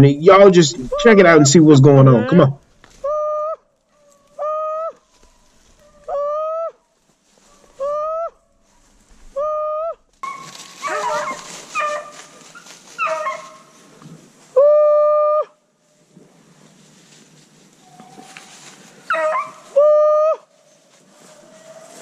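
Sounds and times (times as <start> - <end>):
dogs yelping: 0.9 - 2.4, 3.0 - 6.8, 7.7 - 8.4, 9.3 - 13.7, 19.1 - 20.4
rustle of brush: 3.8 - 6.1, 6.9 - 9.4, 10.1 - 14.6, 15.7 - 19.8, 20.4 - 22.0.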